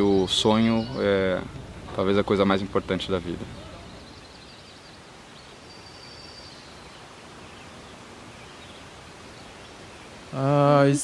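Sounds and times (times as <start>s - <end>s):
faint high-pitched call: 0.0s - 2.0s
background hiss: 0.0s - 11.0s.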